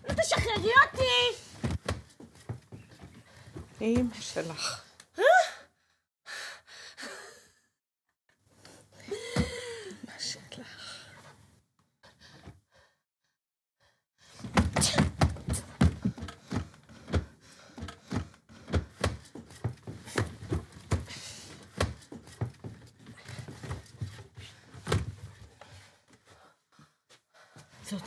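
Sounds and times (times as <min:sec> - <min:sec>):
wooden drawers knocking and rattling: 0:00.0 - 0:04.1.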